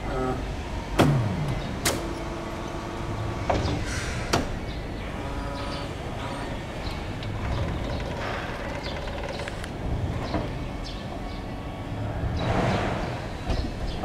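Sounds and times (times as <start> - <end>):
electric pump whine: 0.0 - 10.1
steady low hum: 0.0 - 14.0.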